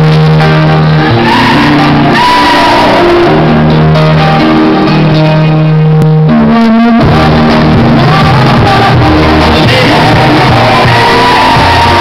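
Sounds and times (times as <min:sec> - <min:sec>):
group singing in harmony: 0:07.1 - 0:12.0.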